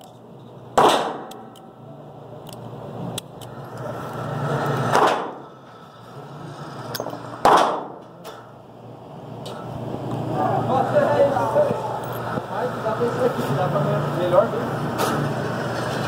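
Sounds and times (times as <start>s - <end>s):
gunshots: 0.8s - 1.4s, 4.9s - 5.4s, 7.4s - 8.0s.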